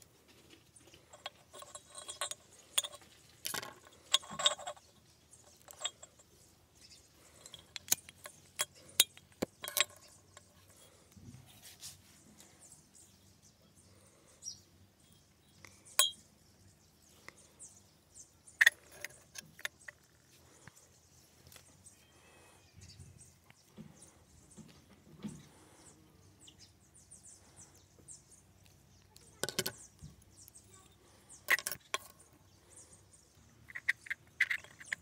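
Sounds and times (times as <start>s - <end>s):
clicks of small parts handled: 1.1s - 6.3s, 7.2s - 10.8s, 18.6s - 20.8s, 28.6s - 30.7s, 31.4s - 32.2s, 33.7s - 35.0s
clatter on tabletop: 29.4s - 29.9s, 31.5s - 32.1s.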